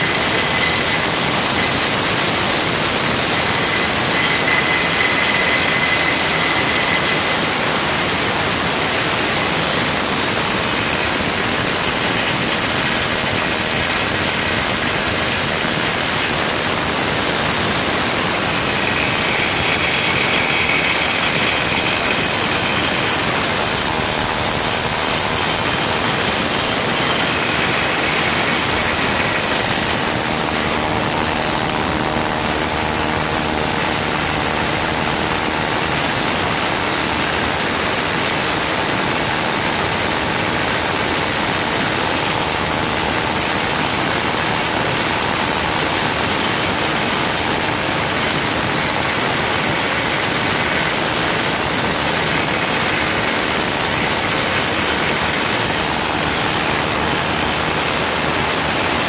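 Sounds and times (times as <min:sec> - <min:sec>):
pneumatic needle scaler hammering metal: 0:12.0 - 0:39.5.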